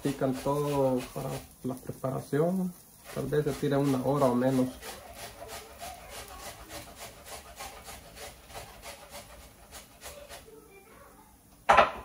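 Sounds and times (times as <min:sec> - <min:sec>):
spatula scraping rice in skillet: 0:00.0 - 0:10.8.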